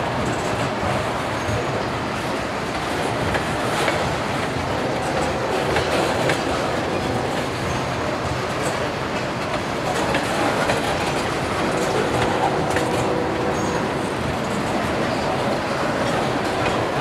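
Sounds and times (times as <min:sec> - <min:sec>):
wheels clicking over rail joints: 0:02.7 - 0:13.8.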